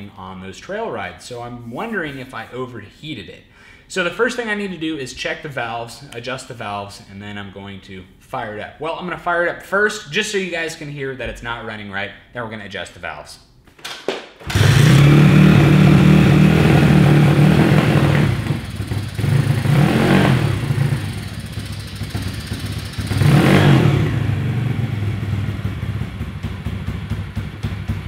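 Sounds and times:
mini bike engine revving and idling: 14.4s - 28.0s.

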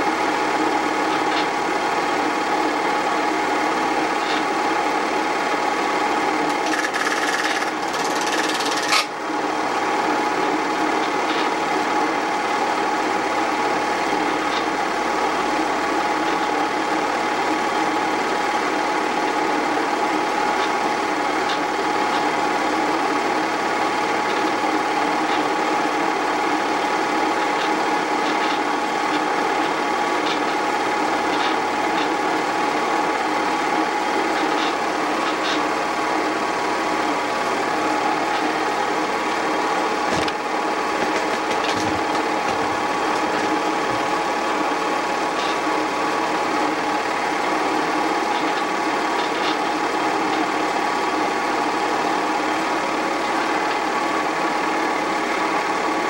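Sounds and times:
film projector whirring and clattering: 0.0s - 56.0s.

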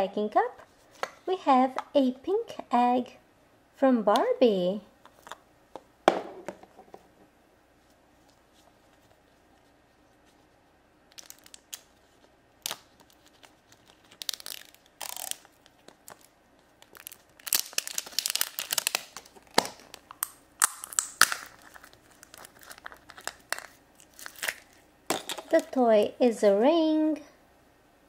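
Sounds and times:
plastic wrapping crinkling: 8.1s - 25.8s.

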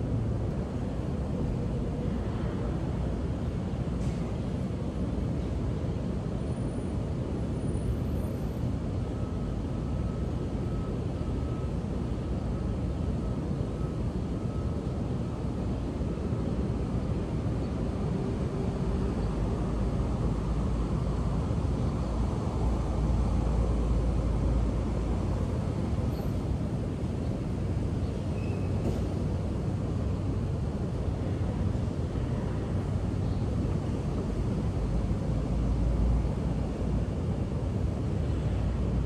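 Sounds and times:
street traffic rumble: 0.0s - 39.0s.

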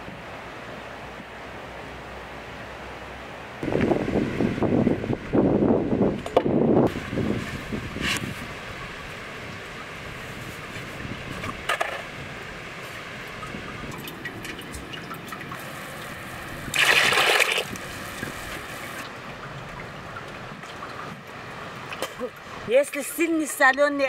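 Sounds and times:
water sloshing: 12.9s - 23.8s
water splashing into bucket: 13.9s - 18.6s.

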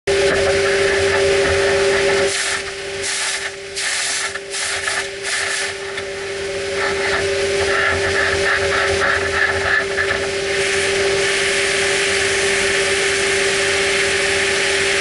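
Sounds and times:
steady machine hum: 0.0s - 15.0s
compressed air hissing: 2.3s - 5.9s, 10.4s - 14.4s.

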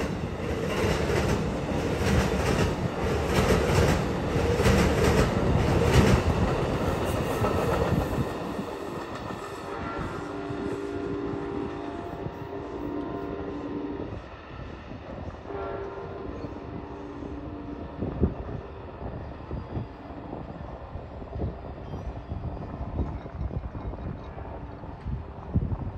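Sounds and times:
train rumble: 0.0s - 25.9s
wind buffeting microphone: 0.0s - 25.9s
train horn: 9.2s - 19.8s.

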